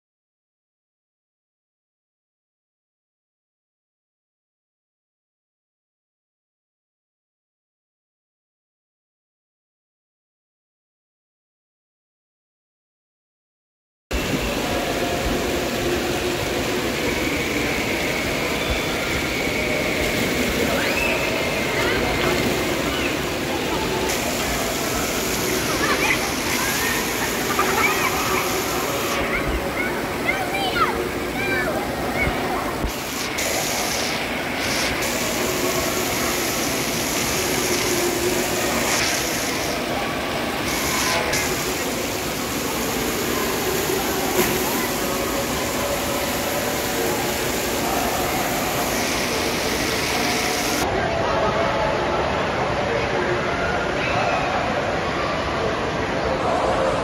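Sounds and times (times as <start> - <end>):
echoing hubbub of voices: 14.1 - 57.0
water spraying and splashing: 14.2 - 50.8.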